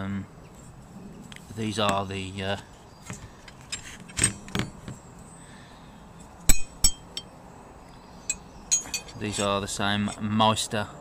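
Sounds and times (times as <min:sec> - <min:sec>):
spanners clinking together: 0:08.3 - 0:09.6.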